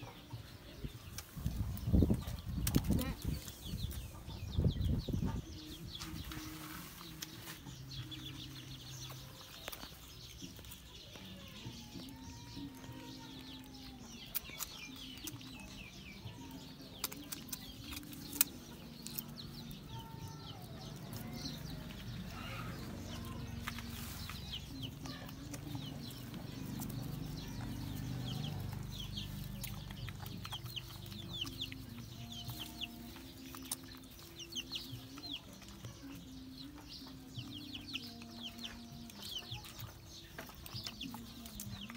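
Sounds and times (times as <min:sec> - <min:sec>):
chickens clucking: 0:00.0 - 0:41.9
chicks peeping: 0:00.0 - 0:41.9.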